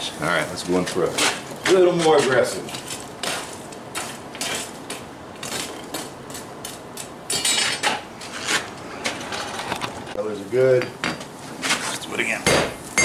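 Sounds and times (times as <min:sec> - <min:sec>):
steel tools clinking and scraping: 0:07.3 - 0:09.6.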